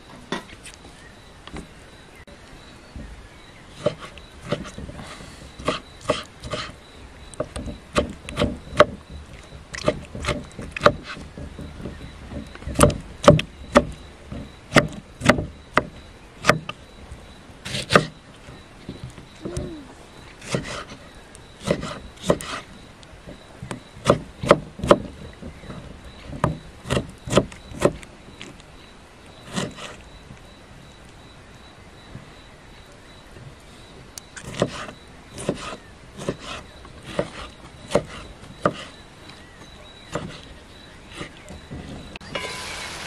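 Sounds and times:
knife chopping on wooden board: 5.6 - 6.7, 7.4 - 9.0, 21.6 - 22.6, 24.0 - 25.1, 34.4 - 38.9.

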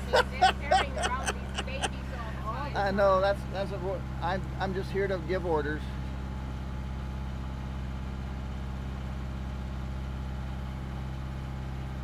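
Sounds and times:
boat engine droning: 0.0 - 2.8.

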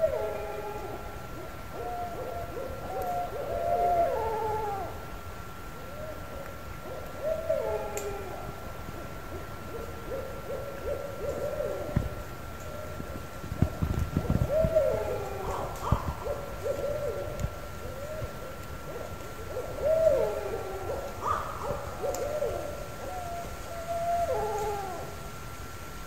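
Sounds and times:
hooting calls: 0.0 - 5.1, 14.1 - 25.3.

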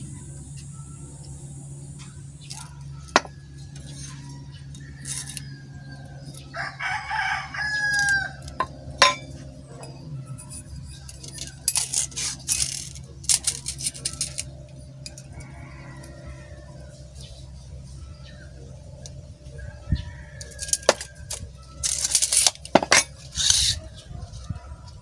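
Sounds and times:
rooster crowing: 3.6 - 9.3, 15.1 - 17.3, 19.5 - 21.3
tape measure and pipe clicking: 11.1 - 14.5, 20.7 - 23.8.

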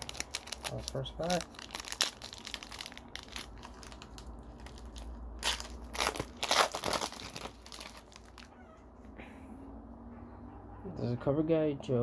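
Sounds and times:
foil wrapper tearing and crinkling: 0.0 - 8.5.

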